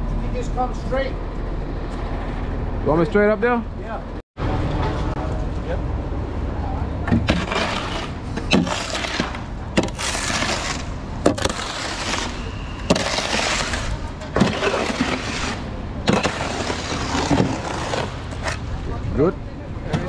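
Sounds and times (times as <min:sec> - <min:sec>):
concrete rushing down a chute: 0:07.1 - 0:18.6.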